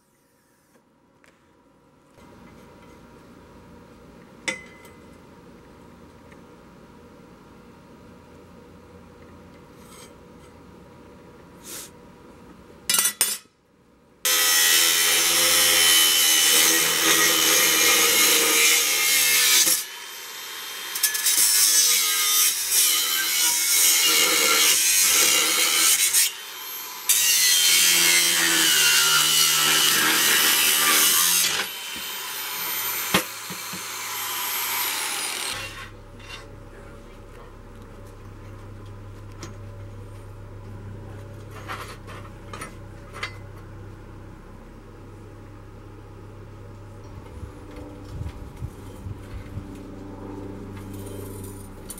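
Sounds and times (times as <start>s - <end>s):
angle grinder grinding steel: 14.3s - 37.0s, 50.8s - 51.9s.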